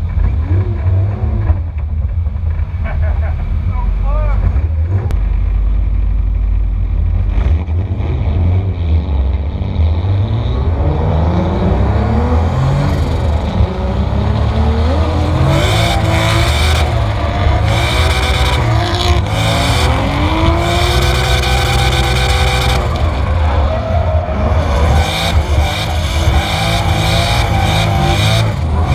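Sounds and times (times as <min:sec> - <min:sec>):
car engine revving: 0:00.0 - 0:28.9
tyre screech: 0:15.1 - 0:28.9.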